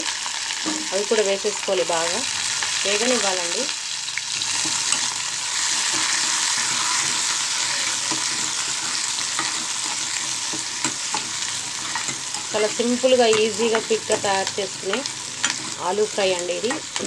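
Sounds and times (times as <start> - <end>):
vegetables sizzling in hot oil: 0.0 - 17.0
spatula scraping a pan: 4.3 - 17.0.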